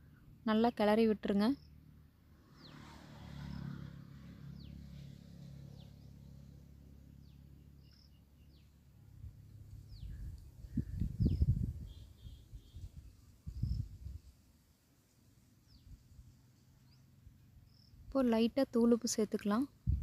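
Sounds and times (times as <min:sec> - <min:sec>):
bird chirping: 0:05.6 - 0:08.8, 0:09.5 - 0:14.0, 0:16.8 - 0:18.0.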